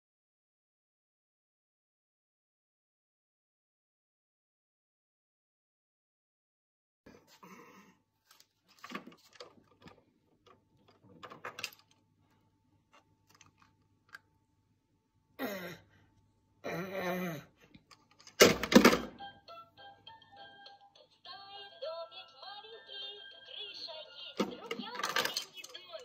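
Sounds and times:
plastic toys clicking and rattling: 8.8s - 12.0s, 13.2s - 14.2s, 24.3s - 26.0s
plastic rattle clattering: 10.9s - 12.0s, 24.4s - 26.0s.

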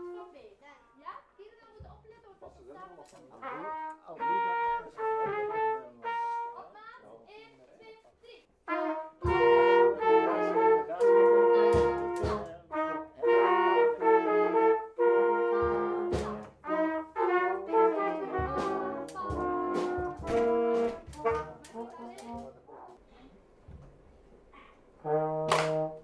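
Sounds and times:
brass band chords: 0.0s - 0.3s, 3.4s - 6.7s, 8.6s - 23.0s, 25.0s - 26.0s
sharp percussion strikes: 11.0s - 12.6s, 15.6s - 17.4s, 18.4s - 22.5s.

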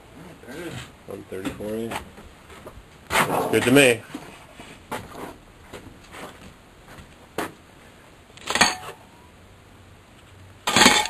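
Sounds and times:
metallic clatter and ring: 8.5s - 9.0s.

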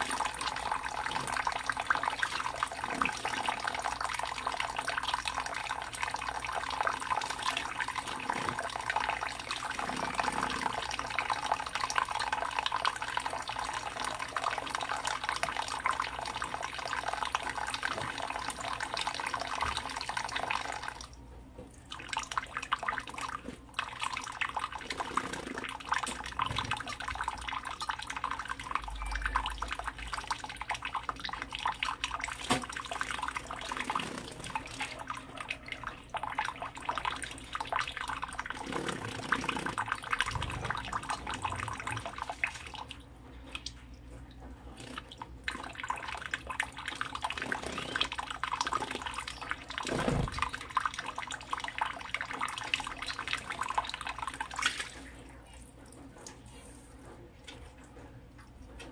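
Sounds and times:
tap water splashing into hands: 32.4s - 32.9s.

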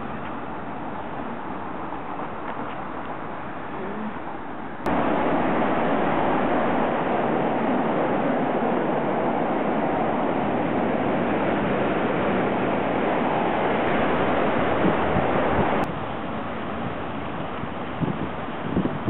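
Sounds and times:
wind on microphone: 4.8s - 19.0s
fountain jets splashing into pool: 4.9s - 19.0s.

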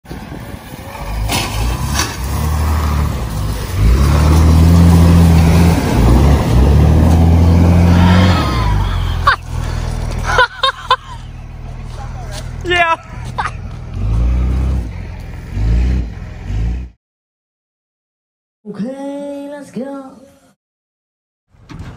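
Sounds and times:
water splashing around wheels: 0.1s - 12.7s
bus engine revving hard: 0.8s - 11.0s, 13.2s - 17.0s
people shouting: 7.7s - 9.4s.

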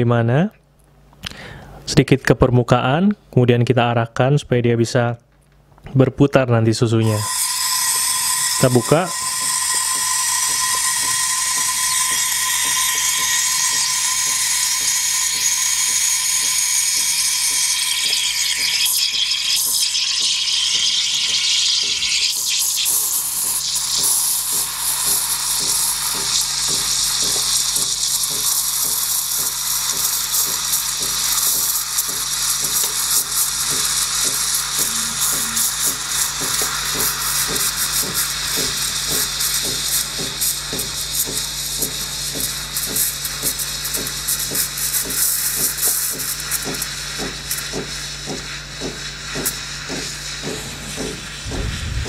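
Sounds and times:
machine hum: 7.0s - 19.0s, 34.8s - 36.2s, 50.6s - 52.0s
steam wand hissing into milk: 7.0s - 52.0s.

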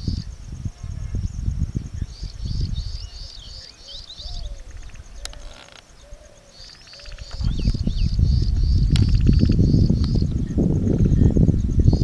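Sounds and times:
insect trill: 0.0s - 12.0s
birds chirping: 1.1s - 12.0s.

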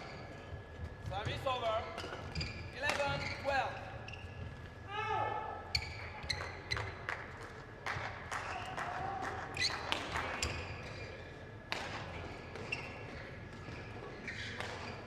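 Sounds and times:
shoes squeaking on court floor: 0.0s - 4.9s, 5.7s - 7.1s, 9.6s - 15.0s
murmur of indoor hall: 0.0s - 15.0s.

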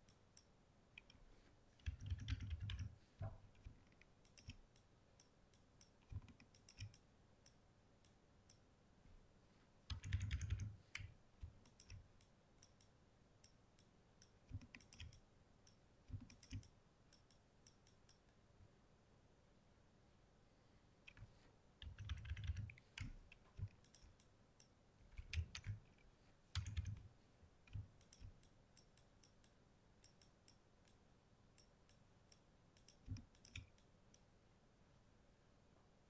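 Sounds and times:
computer mouse clicks: 1.8s - 8.6s, 9.9s - 18.3s, 21.1s - 27.1s, 27.7s - 31.0s, 31.6s - 34.3s.

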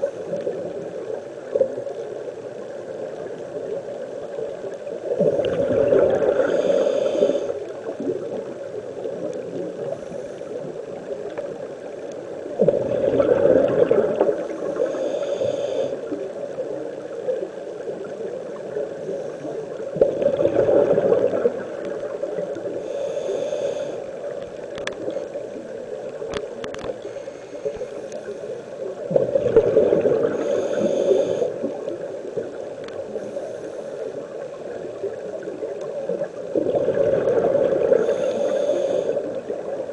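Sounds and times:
exhaled bubbles underwater: 0.0s - 28.1s, 28.8s - 33.4s, 34.1s - 39.9s
steady underwater hiss: 0.0s - 39.9s
regulator inhale hiss: 5.2s - 7.9s, 9.8s - 11.0s, 14.3s - 16.6s, 19.0s - 20.1s, 22.2s - 25.2s, 26.7s - 29.0s, 30.2s - 32.0s, 32.8s - 34.8s, 37.8s - 39.9s.

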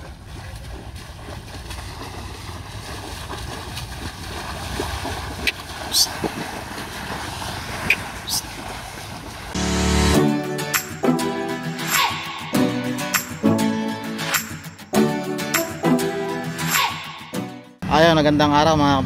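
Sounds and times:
wind rumbling on microphone: 0.0s - 9.6s.

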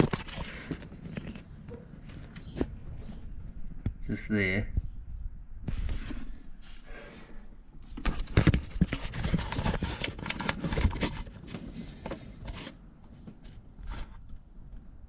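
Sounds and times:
clattering knocks and scrapes: 7.9s - 14.3s.

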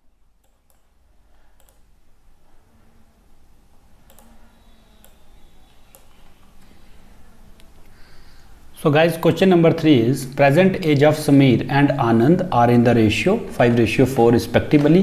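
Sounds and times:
low room hum: 0.0s - 15.0s
computer mouse clicking: 0.4s - 1.9s, 4.0s - 6.7s.

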